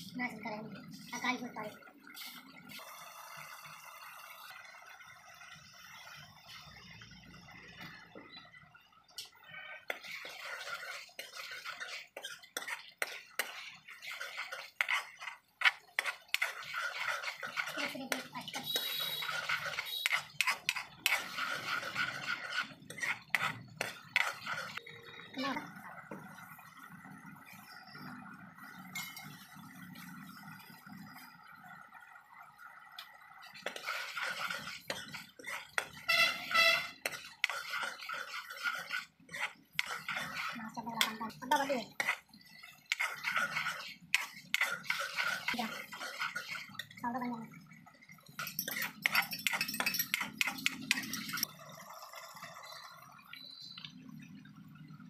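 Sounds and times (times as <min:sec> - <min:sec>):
ladle scraping sauce in a pan: 0:09.8 - 0:24.8, 0:33.3 - 0:47.0, 0:48.2 - 0:51.5.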